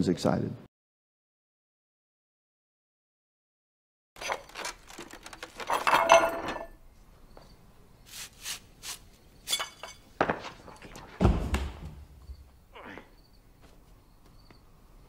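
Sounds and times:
small hard objects clinking: 0:04.2 - 0:06.8
dull thump: 0:11.2 - 0:12.5.

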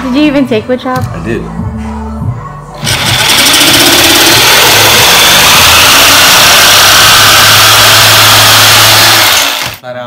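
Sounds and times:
jigsaw sawing through board: 0:02.8 - 0:09.8.

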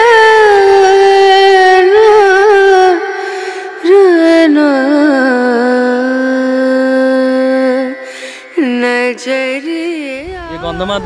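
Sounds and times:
person singing: 0:08.6 - 0:11.0.

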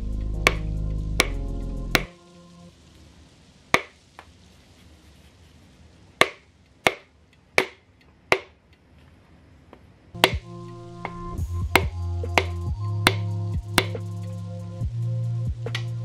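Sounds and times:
hammer handle tapping piston: 0:10.2 - 0:14.0.

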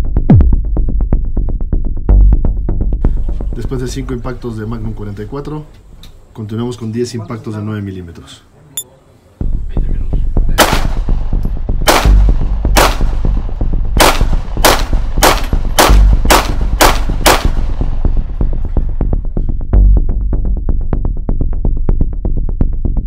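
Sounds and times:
pistol shots: 0:10.6 - 0:11.1, 0:11.9 - 0:13.2, 0:14.0 - 0:17.8.

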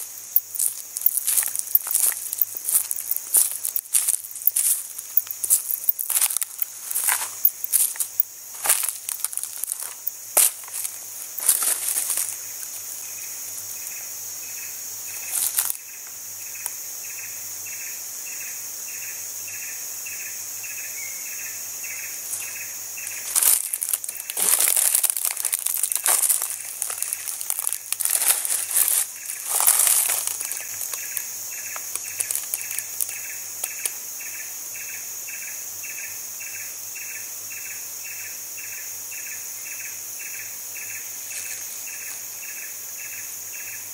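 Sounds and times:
rustling and crunching leaves: 0:00.0 - 0:13.7, 0:15.1 - 0:15.8, 0:22.2 - 0:34.0
insect chirping in pulses: 0:00.0 - 0:43.9
insect high buzz: 0:00.0 - 0:43.9.

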